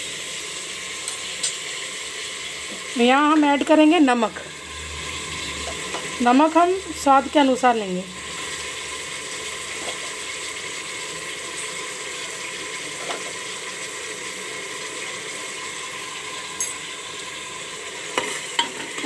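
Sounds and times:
vegetables sizzling in hot oil: 0.0 - 19.0.

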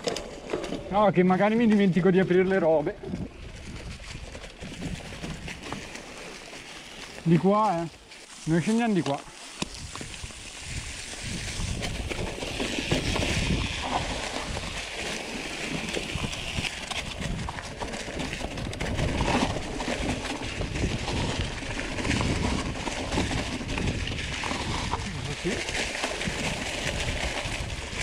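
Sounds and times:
bike clicks and rattles: 0.0 - 28.0
bike tyres crunching dry leaves: 0.0 - 28.0.

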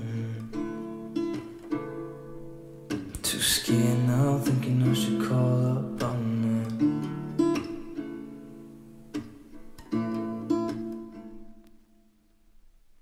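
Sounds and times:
acoustic guitar strumming chords: 0.0 - 12.2.

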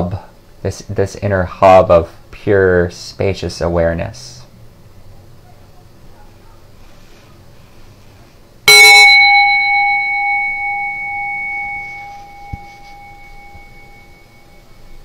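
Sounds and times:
meditation bell ringing: 8.7 - 15.0.

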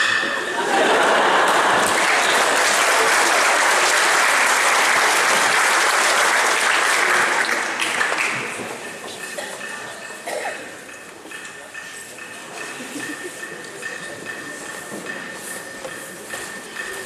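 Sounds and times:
audience applauding: 0.6 - 9.0.

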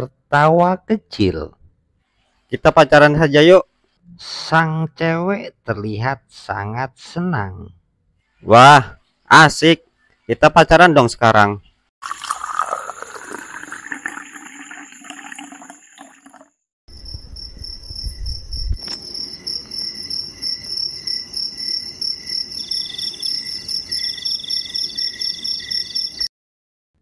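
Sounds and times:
crickets chirping: 16.9 - 26.3.

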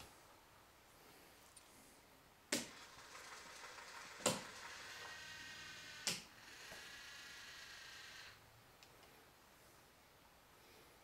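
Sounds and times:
faint motor whine: 2.6 - 10.0.

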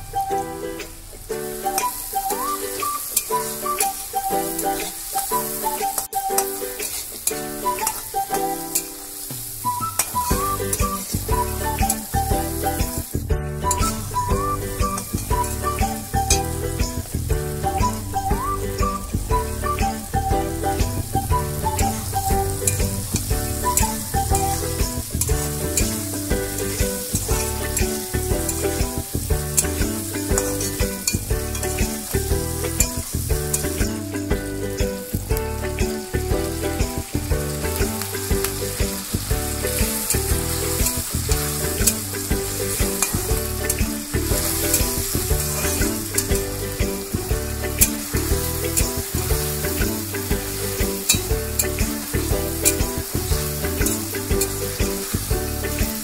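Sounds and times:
food sizzling in oil: 0.0 - 56.0.

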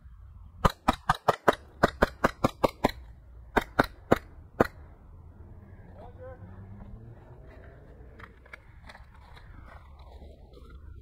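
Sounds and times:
airsoft rifle shots: 0.6 - 4.9.

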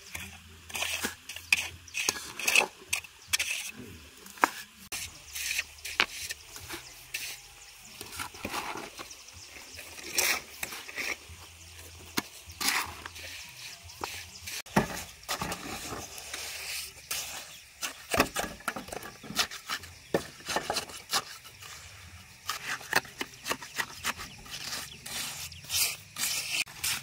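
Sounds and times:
shovel scraping wet mortar: 0.0 - 27.0.

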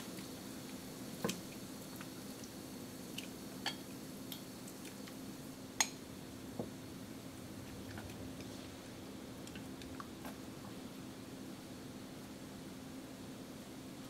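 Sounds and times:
water bubbling in a pan: 0.0 - 11.2
low steady hum: 0.0 - 14.0.

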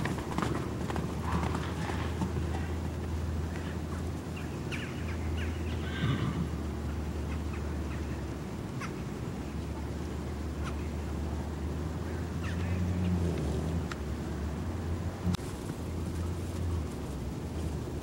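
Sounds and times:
hoofbeats on sand: 0.0 - 4.4
horse calling: 0.0 - 11.2.

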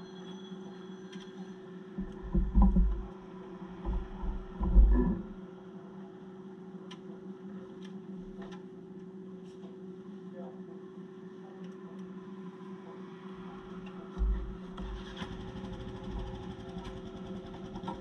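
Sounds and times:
low mechanical hum: 0.0 - 18.0
loud low rumbles: 3.9 - 5.4.

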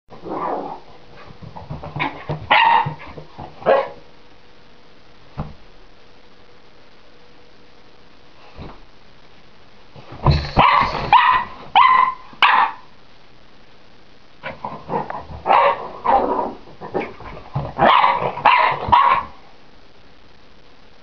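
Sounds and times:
puppy yapping: 2.0 - 3.0, 10.6 - 12.8, 17.8 - 19.3.

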